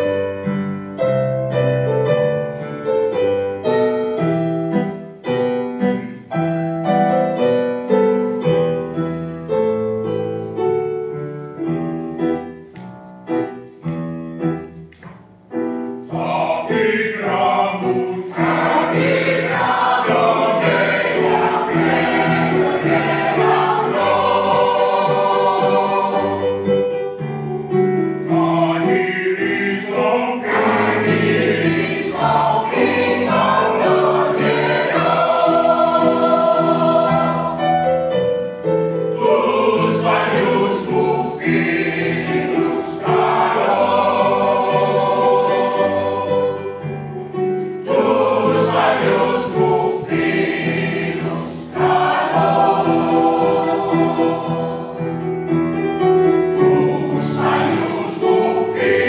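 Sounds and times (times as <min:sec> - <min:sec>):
piano accompaniment: 0:00.0 - 0:59.0
mixed choir singing in harmony: 0:15.7 - 0:59.0.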